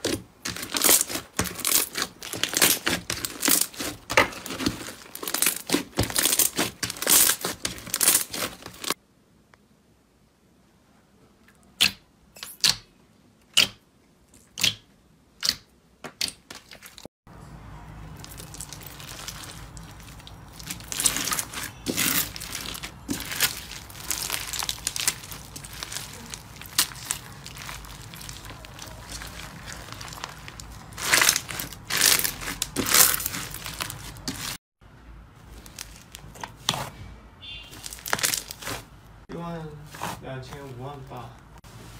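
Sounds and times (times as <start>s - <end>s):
crunchy slime crackling: 0.0s - 9.0s, 18.1s - 34.6s, 35.4s - 36.9s, 37.7s - 39.0s, 39.7s - 41.7s.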